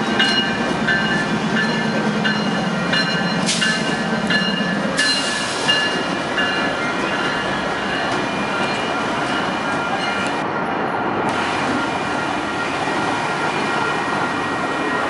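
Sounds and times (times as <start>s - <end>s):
crossing bell ringing: 0.0s - 10.6s
train wheels rumbling on rail: 0.0s - 15.0s.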